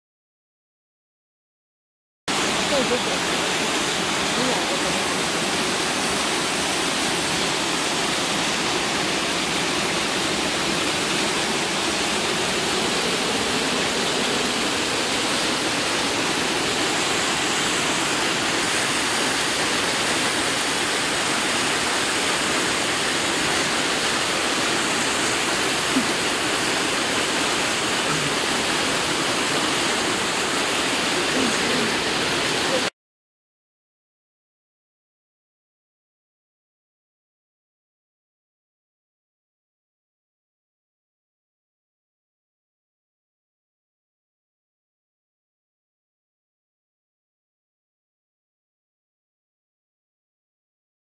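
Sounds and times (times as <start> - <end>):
mountain stream rushing: 2.3 - 32.9.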